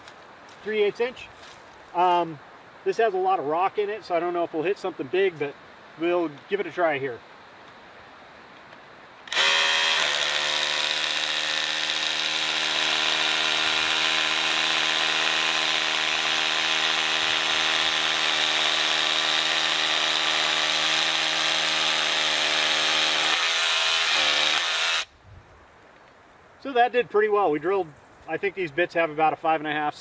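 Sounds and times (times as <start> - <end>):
rotary hammer drilling into rock: 9.3 - 25.1.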